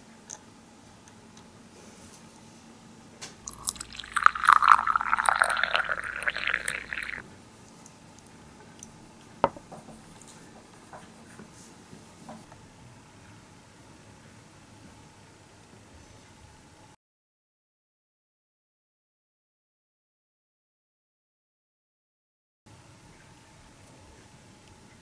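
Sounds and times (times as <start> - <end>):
tea pouring into cup: 3.5 - 7.2.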